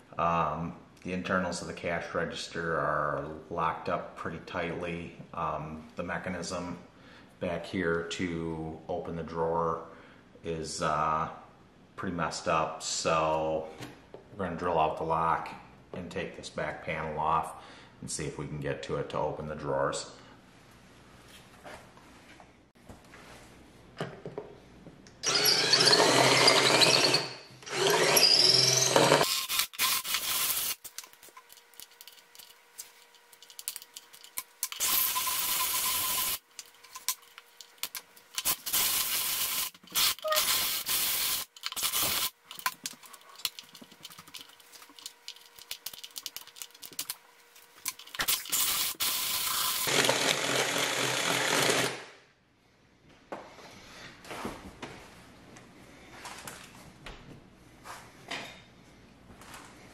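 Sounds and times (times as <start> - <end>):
drill bit squealing on metal: 25.2 - 30.7, 39.9 - 41.0
cordless drill drilling metal: 25.2 - 30.8, 34.7 - 36.4, 38.4 - 42.4, 48.1 - 52.0.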